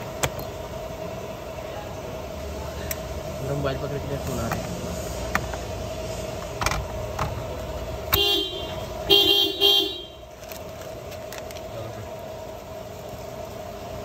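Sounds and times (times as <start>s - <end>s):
car horn toots: 8.1s - 10.2s.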